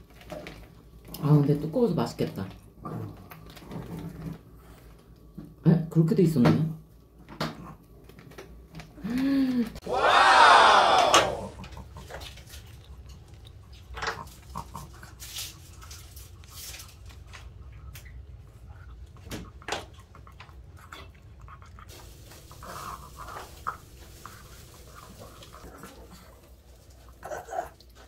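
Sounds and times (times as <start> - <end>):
dog chewing: 11.6 - 28.0.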